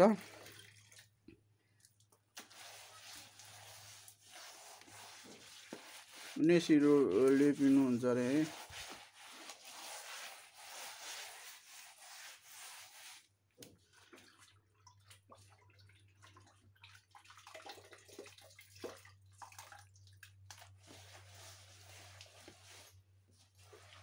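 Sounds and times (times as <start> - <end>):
hand smearing wet mud: 2.3 - 14.4, 20.5 - 24.0.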